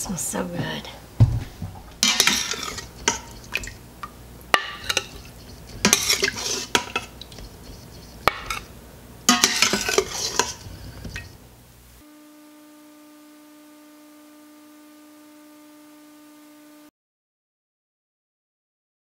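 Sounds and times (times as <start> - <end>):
metal spoon scraping in steel pot: 2.0 - 3.6, 4.6 - 8.7, 9.3 - 10.8.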